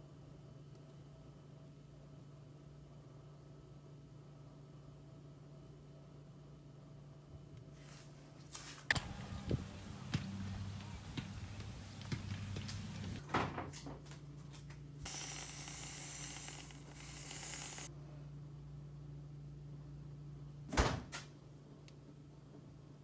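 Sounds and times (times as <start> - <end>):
light knocks: 8.9 - 13.2
aerosol can hissing: 15.1 - 17.9.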